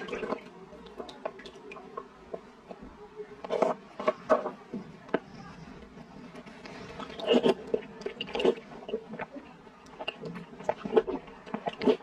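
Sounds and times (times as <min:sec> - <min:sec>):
chewing: 0:03.4 - 0:12.0
slurping dessert off spoon: 0:06.4 - 0:09.3.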